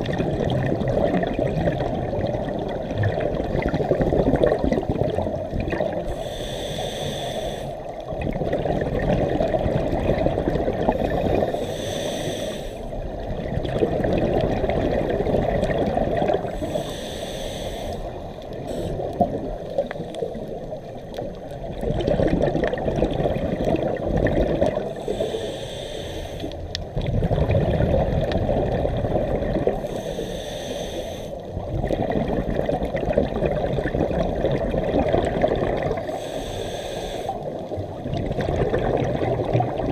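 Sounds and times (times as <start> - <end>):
rumble of exhaled bubbles: 0.0 - 6.2, 7.9 - 11.6, 13.0 - 16.7, 18.1 - 25.2, 26.7 - 30.0, 31.5 - 36.2, 37.3 - 39.9
regulator hissing inhale: 6.0 - 8.0, 11.0 - 13.0, 16.5 - 19.2, 24.9 - 26.7, 29.8 - 31.5, 36.0 - 37.7.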